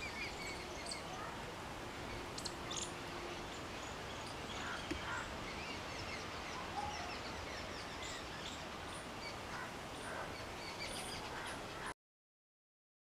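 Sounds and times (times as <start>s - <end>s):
steady background hiss: 0.0s - 11.9s.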